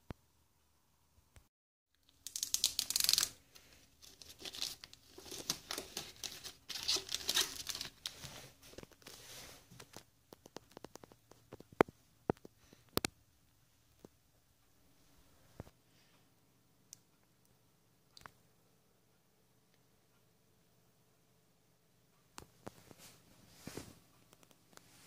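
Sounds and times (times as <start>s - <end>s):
plastic film peeling crackle: 2.0s - 9.2s.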